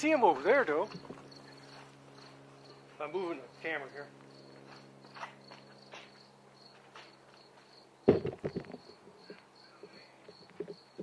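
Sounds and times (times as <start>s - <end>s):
crickets chirping: 0.4s - 11.0s
knocks and rattles: 8.1s - 9.4s.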